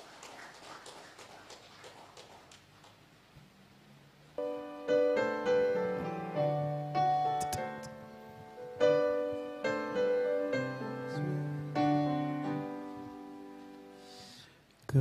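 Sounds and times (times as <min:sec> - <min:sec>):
piano playing gentle chords: 0:04.4 - 0:14.2.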